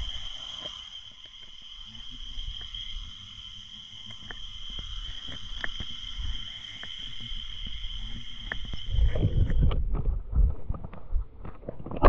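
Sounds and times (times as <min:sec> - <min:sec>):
underwater high whine: 0:00.0 - 0:12.0
low underwater rumble: 0:07.3 - 0:12.0
faint clicks: 0:08.4 - 0:09.8.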